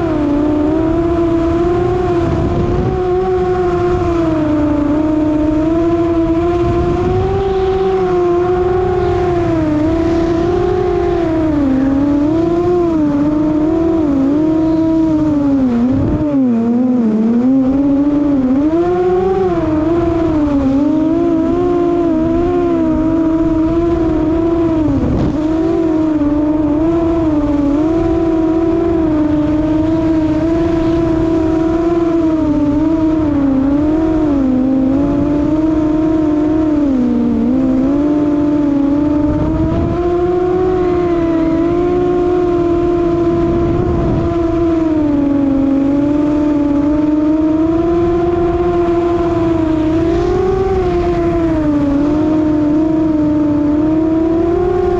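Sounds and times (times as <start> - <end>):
drone motors whining: 0.0 - 54.9
wind rushing over microphone: 0.0 - 54.9.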